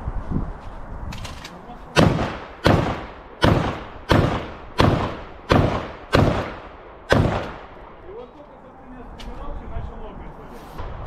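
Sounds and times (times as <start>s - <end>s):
echoing gunshots: 1.9s - 8.0s.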